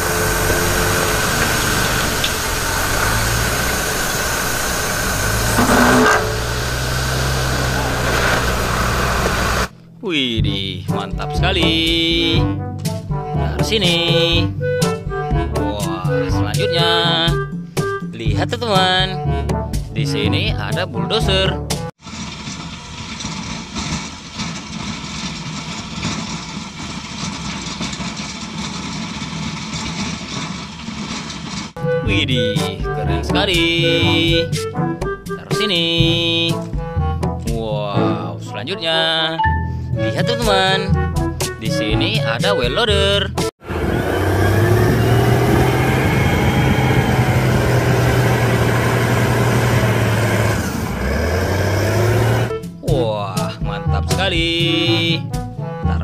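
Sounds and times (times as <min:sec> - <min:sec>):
rushing noise of pushed snow: 0:00.0 - 0:09.7, 0:43.7 - 0:52.5
snowplow engine running under load: 0:00.0 - 0:09.9, 0:22.0 - 0:31.9, 0:43.6 - 0:52.6
loader diesel engine humming: 0:00.0 - 0:19.7, 0:43.6 - 0:52.8.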